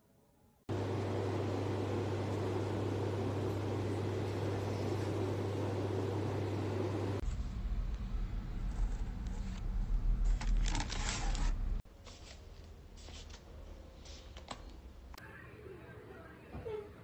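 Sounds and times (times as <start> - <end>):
low hum: 0.4 - 11.8
packaging rustling and crinkling: 8.7 - 12.5.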